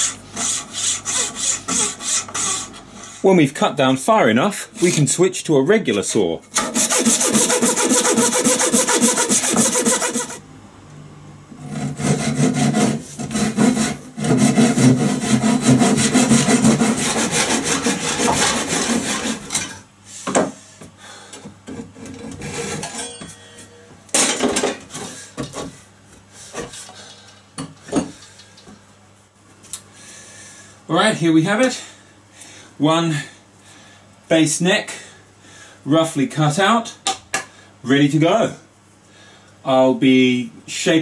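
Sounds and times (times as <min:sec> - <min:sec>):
hand saw cutting wood: 0:00.0 - 0:02.8, 0:06.6 - 0:10.4, 0:11.6 - 0:19.6, 0:22.3 - 0:22.9.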